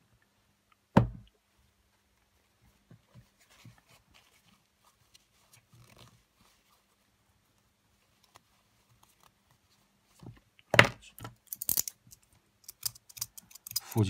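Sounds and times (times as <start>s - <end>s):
paper tissue rustling: 2.4s - 10.2s
metal tweezers clicking: 12.6s - 14.0s.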